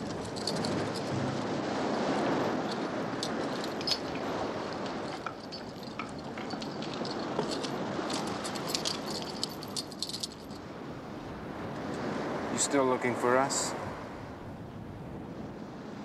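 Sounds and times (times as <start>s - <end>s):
light metallic clinks and jangles: 0.0s - 10.7s
wind: 0.0s - 16.0s.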